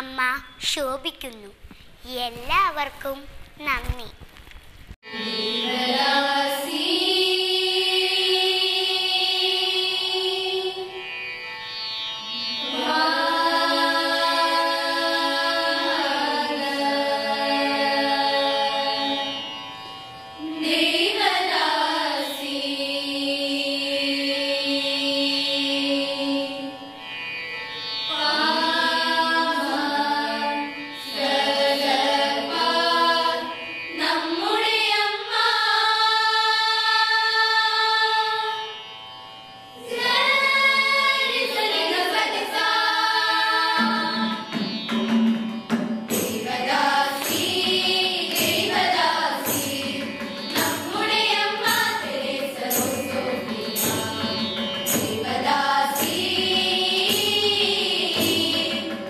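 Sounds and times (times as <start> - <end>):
girls singing together: 5.1 - 11.0, 12.6 - 19.4, 20.4 - 26.8, 28.1 - 38.6, 39.8 - 44.5, 46.1 - 59.0
tabla and hand drum beat: 43.8 - 59.0.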